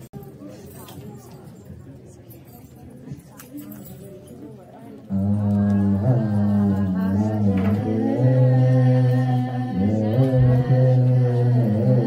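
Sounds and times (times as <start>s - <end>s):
group chanting a hymn: 5.1s - 12.0s.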